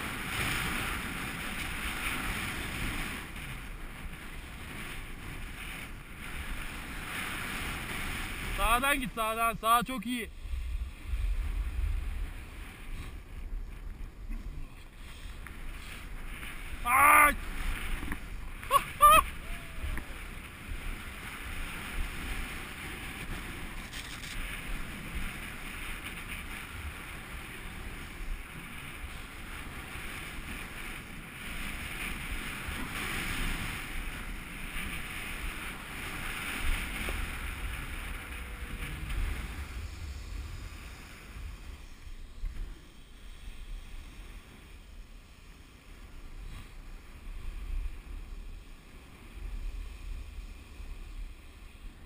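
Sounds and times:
skis sliding over crusty snow: 0:00.0 - 0:52.0
wind rushing over microphone: 0:00.0 - 0:52.0.

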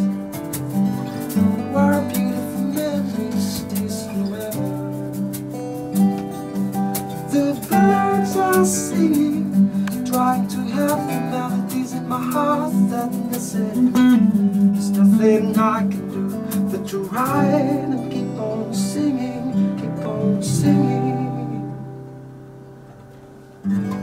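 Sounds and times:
acoustic guitars strumming: 0:00.0 - 0:24.0
man singing: 0:01.2 - 0:05.2, 0:07.1 - 0:22.0.

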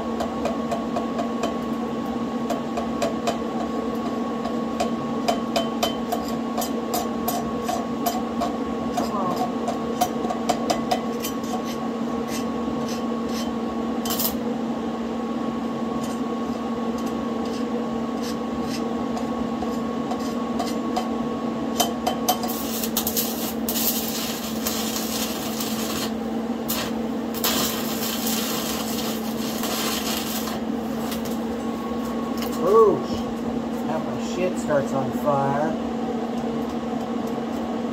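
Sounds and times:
steady hum: 0:11.2 - 0:37.9
welding arc crackling sizzle: 0:21.7 - 0:35.8.

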